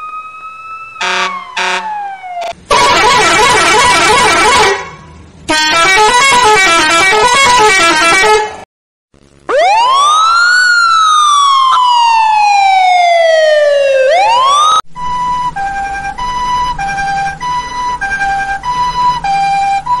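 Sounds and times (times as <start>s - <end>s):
electronic siren wail: 0.0s - 4.8s, 9.5s - 20.0s
two-tone siren: 0.0s - 8.4s, 9.5s - 20.0s.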